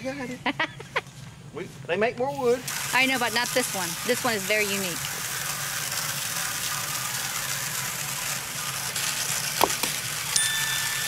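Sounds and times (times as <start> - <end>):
engine running: 0.0 - 11.0
metallic clink: 10.3 - 11.0.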